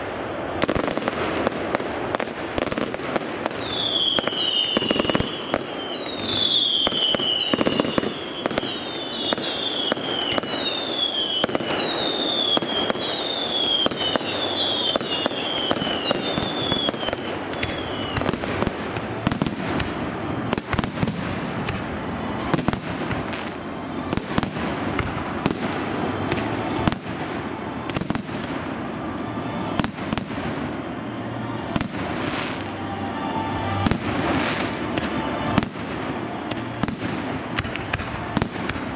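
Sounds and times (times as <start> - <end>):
fireworks bursts and crackling: 0.0 - 38.9
falling firework whistles: 3.4 - 19.7.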